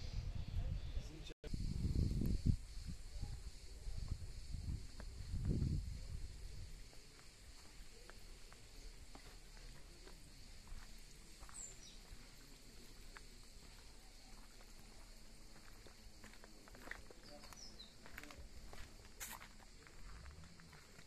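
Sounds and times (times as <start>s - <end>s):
faint footsteps on cobblestones: 4.0s - 21.0s
bird chirping: 10.7s - 12.8s.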